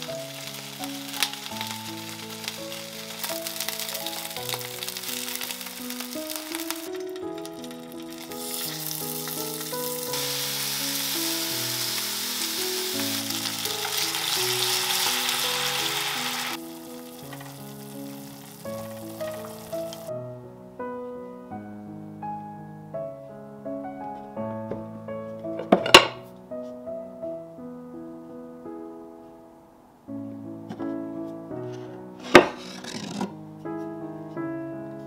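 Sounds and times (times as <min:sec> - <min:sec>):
chicken wings sizzling in a pan: 0:00.0 - 0:20.1
background music: 0:00.0 - 0:35.0.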